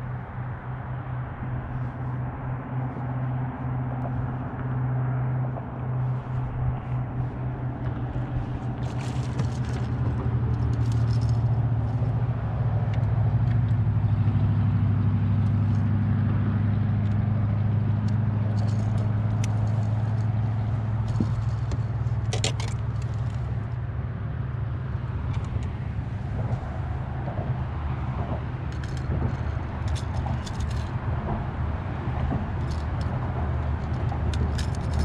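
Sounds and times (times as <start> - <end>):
boat motor hum: 0.0 - 35.0
fishing tackle clicks and rattles: 7.8 - 12.1, 18.0 - 23.8, 25.3 - 25.8, 28.6 - 31.3, 32.2 - 35.0.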